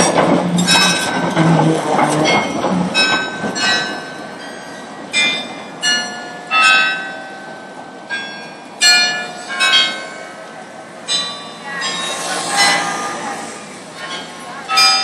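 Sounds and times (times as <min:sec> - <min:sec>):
street traffic: 0:00.0 - 0:15.0
bicycle bells ringing: 0:11.1 - 0:13.4, 0:14.1 - 0:15.0.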